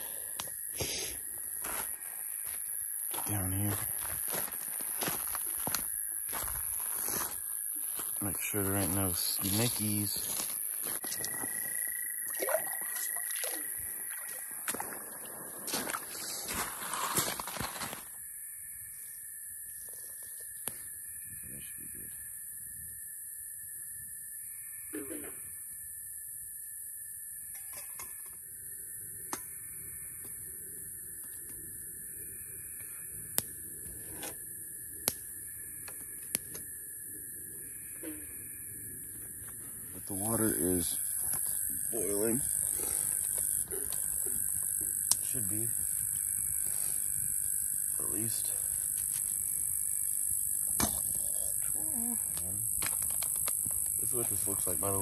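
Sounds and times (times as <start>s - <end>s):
high insect buzz: 0.0s - 55.0s
frog trill: 11.1s - 14.7s, 24.5s - 25.6s
water sloshing: 12.3s - 15.0s.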